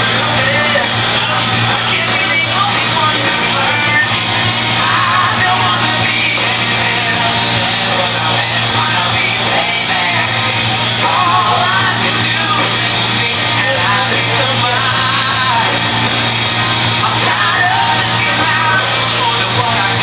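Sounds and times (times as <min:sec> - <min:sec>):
person singing: 0:00.0 - 0:20.0
rock song playing: 0:00.0 - 0:20.0.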